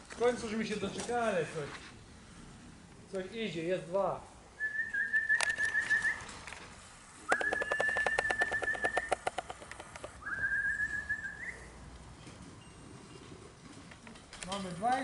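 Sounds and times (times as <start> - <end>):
rapid clicks: 7.3 - 10.2
person whistling high note: 10.2 - 11.7.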